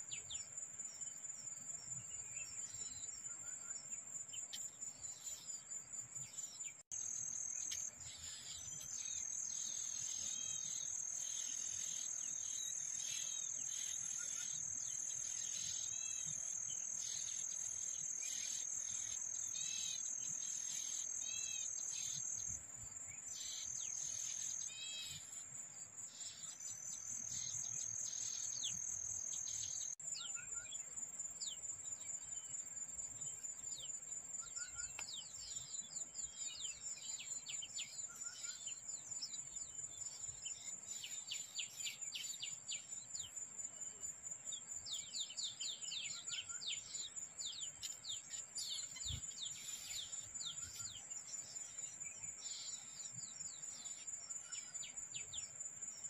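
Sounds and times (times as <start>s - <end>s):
nestlings begging chirps: 44.5s - 55.5s.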